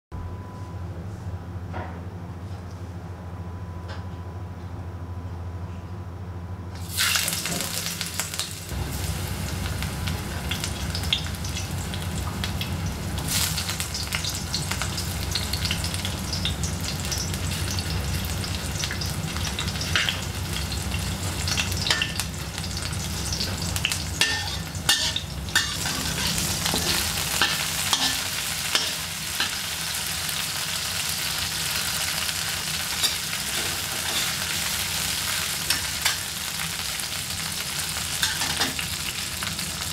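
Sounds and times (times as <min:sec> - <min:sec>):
steady low hum: 0:00.1 - 0:06.9, 0:07.5 - 0:31.7
garlic sizzling in hot oil: 0:06.8 - 0:39.9
metal spatula scraping a wok: 0:24.2 - 0:28.2, 0:33.0 - 0:34.4.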